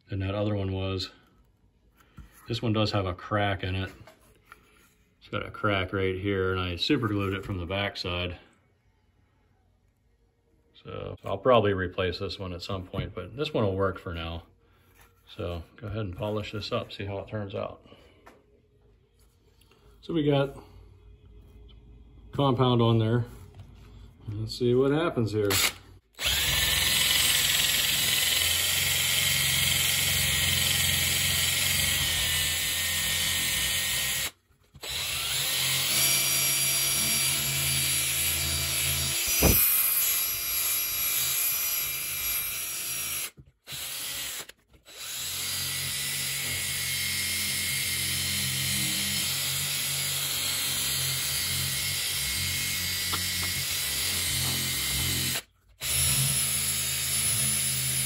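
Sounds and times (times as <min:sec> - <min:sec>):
cordless drill polishing: 0:25.4 - 0:58.0.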